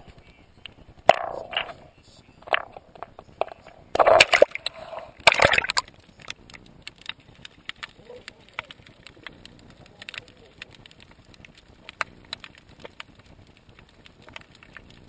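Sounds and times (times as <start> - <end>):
water splashing and sloshing: 4.0 - 5.9.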